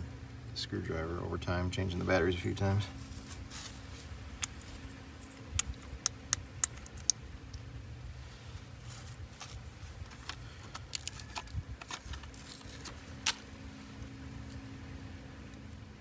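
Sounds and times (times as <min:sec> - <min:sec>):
steady low hum: 0:00.0 - 0:16.0
small plastic clicks: 0:05.2 - 0:07.6, 0:10.1 - 0:13.4
paper rustling: 0:08.8 - 0:13.4.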